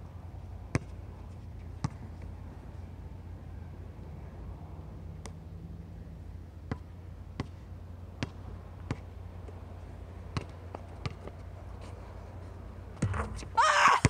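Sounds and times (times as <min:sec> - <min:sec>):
basketball bouncing on hard court: 0:08.2 - 0:09.0.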